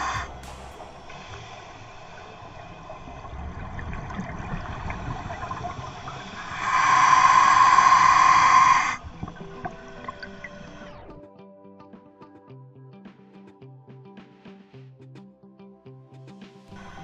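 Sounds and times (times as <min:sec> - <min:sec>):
underwater rumbling bubbles: 0:00.0 - 0:11.2.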